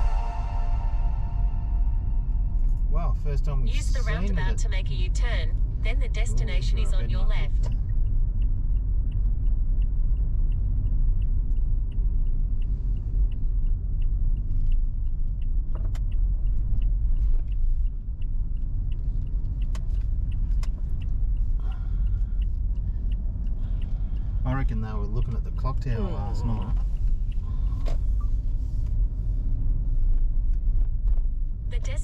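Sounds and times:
car engine low rumble: 0:00.0 - 0:32.0
light even ticking: 0:07.7 - 0:28.6.

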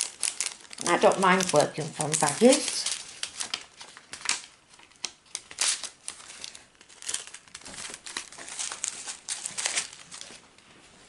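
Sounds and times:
plastic packets crinkling: 0:00.0 - 0:10.6.

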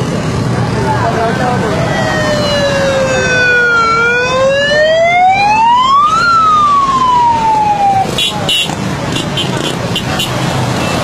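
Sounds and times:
emergency siren wailing: 0:01.1 - 0:08.2.

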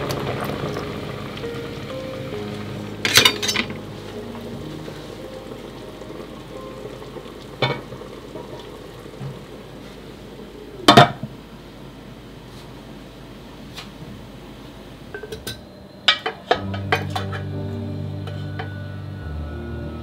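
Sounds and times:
metal lid clanking on pot: 0:03.0 - 0:03.7
syrup bubbling in a pot: 0:03.8 - 0:10.9.

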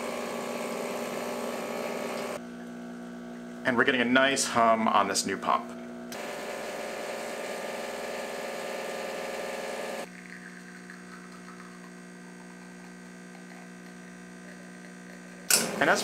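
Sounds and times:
espresso machine pump buzzing: 0:00.0 - 0:16.0
quiet pump hum: 0:10.1 - 0:16.0.

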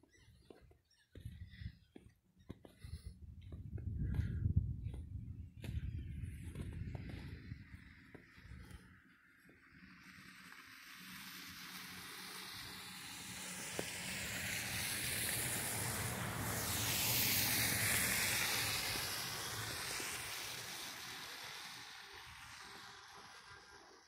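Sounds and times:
car tyres hissing on wet road: 0:06.8 - 0:24.0.

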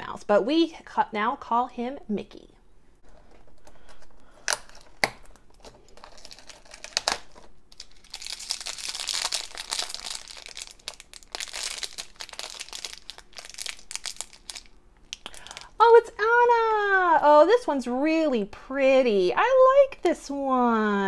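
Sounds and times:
foil bag crinkling: 0:03.0 - 0:15.8.

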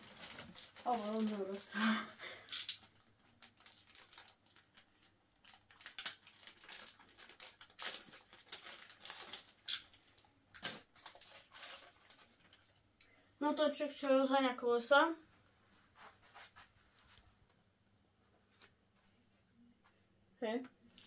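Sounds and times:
plastic bag crinkling: 0:00.0 - 0:12.8.

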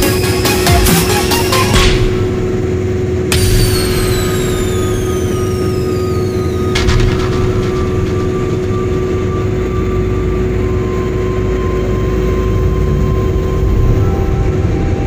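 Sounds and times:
engine and tyre rumble: 0:00.0 - 0:15.0
sharp knock: 0:06.6 - 0:09.6.

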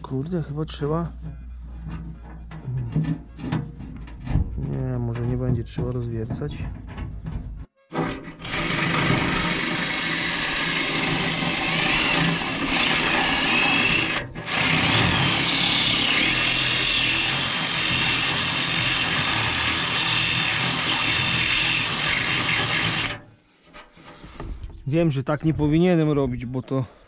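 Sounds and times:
drill drilling into metal: 0:08.0 - 0:23.2.

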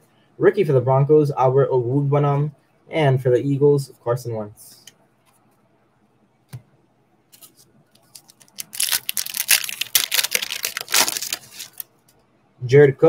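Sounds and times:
foil wrapper tearing and crinkling: 0:08.0 - 0:11.8.

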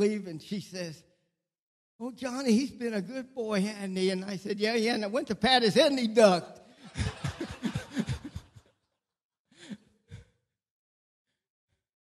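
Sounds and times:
person laughing: 0:07.0 - 0:08.6.

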